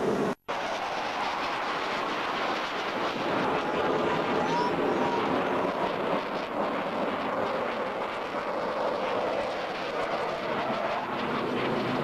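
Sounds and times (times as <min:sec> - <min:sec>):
jet flying past: 0:00.0 - 0:12.0.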